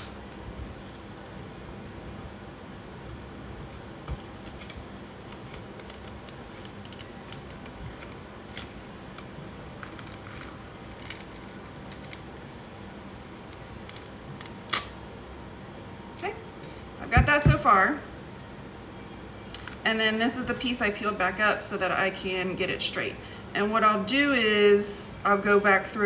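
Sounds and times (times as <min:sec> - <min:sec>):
plastic film crinkling: 0:00.1 - 0:15.0.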